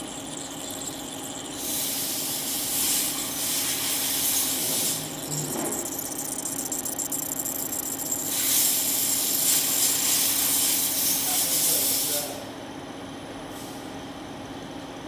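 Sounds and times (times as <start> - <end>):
electrical hum: 0.0 - 11.8
fluid spraying hiss: 1.6 - 5.0, 8.3 - 12.2.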